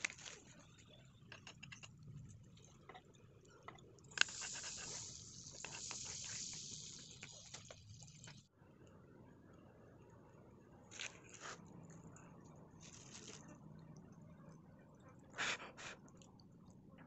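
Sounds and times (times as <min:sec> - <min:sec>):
syrup squirting: 0:04.2 - 0:08.4.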